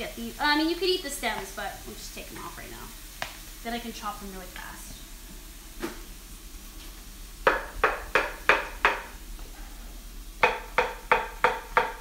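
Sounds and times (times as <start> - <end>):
knife chopping on wooden board: 10.4 - 12.0.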